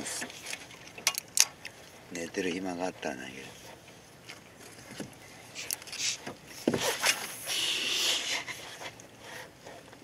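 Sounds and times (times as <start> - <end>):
reel line hissing: 6.8 - 9.5.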